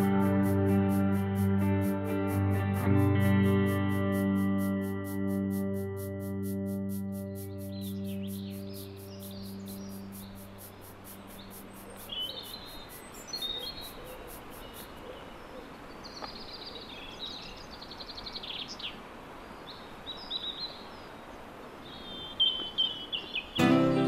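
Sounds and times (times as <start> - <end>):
fast high ticking: 0.0 - 14.9
steady background hiss: 0.0 - 24.0
birds chirping and twittering: 3.5 - 23.6.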